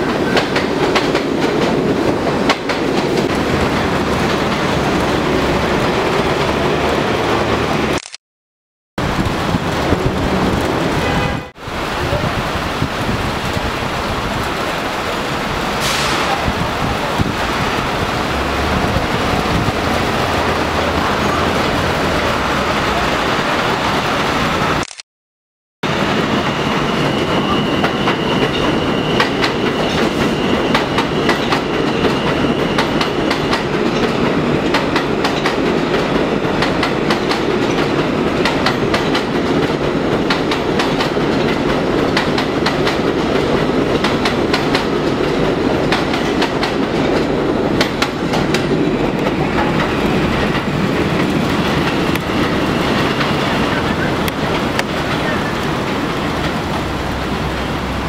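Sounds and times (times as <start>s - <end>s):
wheels clacking over rail joints: 0.0s - 7.4s, 26.5s - 58.0s
subway trains passing at speed: 0.0s - 8.0s, 9.0s - 24.8s, 25.8s - 58.0s.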